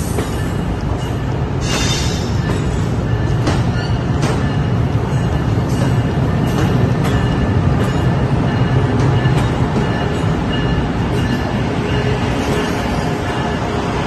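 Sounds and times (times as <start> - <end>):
train rumbling past: 0.0 - 14.0.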